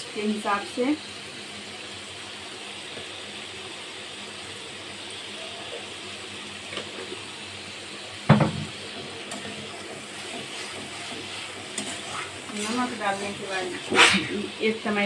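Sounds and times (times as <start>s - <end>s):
paste sizzling in a pan: 0.0s - 15.0s
metal ladle knocking on pan: 8.3s - 8.7s
ladle scraping pan: 9.3s - 14.4s.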